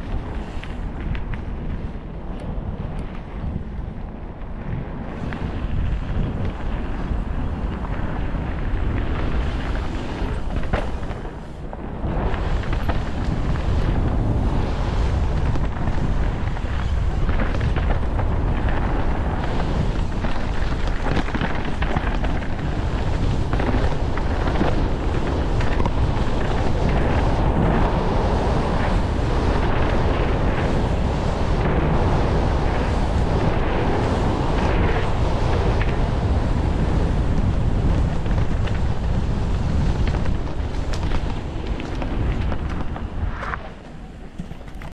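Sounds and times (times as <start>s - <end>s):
bike tyres running over dirt: 0.0s - 44.9s
wind buffeting microphone: 0.0s - 44.9s
bike knocks and rattles: 37.8s - 44.9s.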